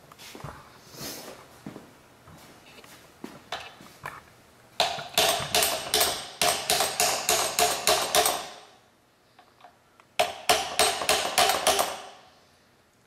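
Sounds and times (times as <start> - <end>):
hammer tapping steel punch: 4.8 - 8.7, 10.2 - 12.2.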